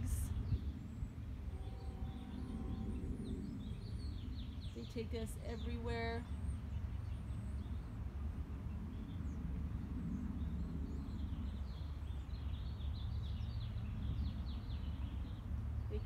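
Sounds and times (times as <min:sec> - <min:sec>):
birds chirping: 0:00.0 - 0:08.0
low background rumble: 0:00.0 - 0:16.0.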